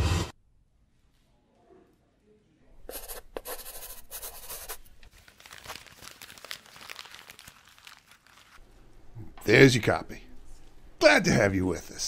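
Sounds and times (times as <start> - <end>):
pen scratching on paper: 2.9 - 4.8
paper rustling: 3.0 - 8.6.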